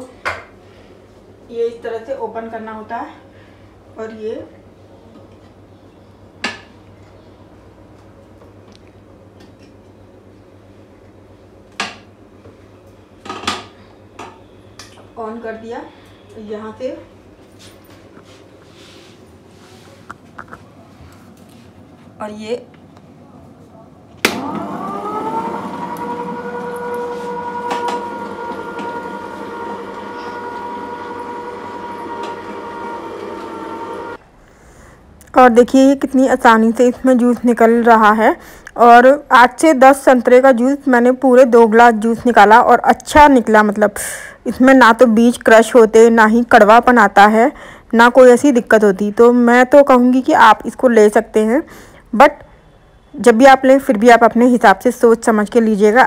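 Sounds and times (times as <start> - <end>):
juicer motor humming: 24.2 - 34.2.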